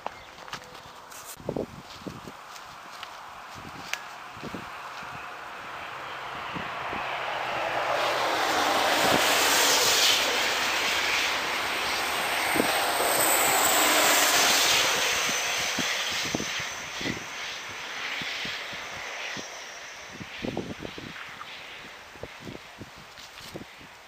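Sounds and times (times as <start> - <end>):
train rushing past: 4.0 - 22.7
high falling whistle: 5.8 - 21.9.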